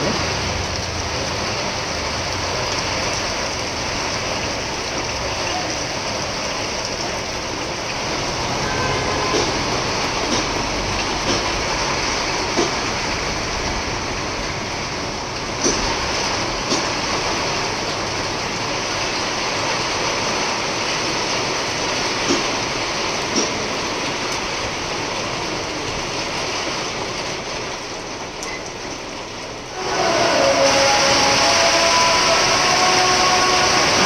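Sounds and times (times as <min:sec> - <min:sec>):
raindrops tapping nearby: 0:00.0 - 0:29.8
heavy rain on a street: 0:00.0 - 0:34.0
loud steady tone noise: 0:08.3 - 0:11.4, 0:29.6 - 0:34.0.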